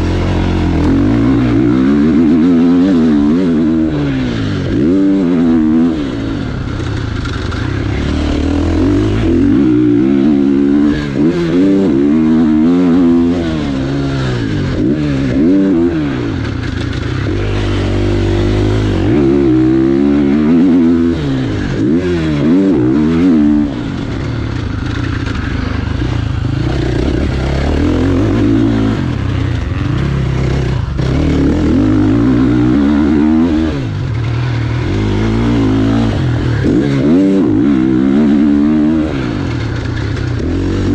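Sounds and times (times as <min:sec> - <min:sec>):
motorcycle engine revving: 0:00.0 - 0:40.9.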